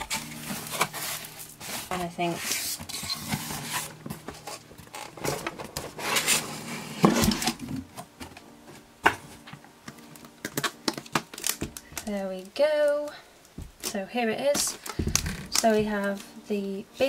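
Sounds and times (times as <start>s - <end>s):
cardboard scraping and rubbing: 0.0s - 7.7s.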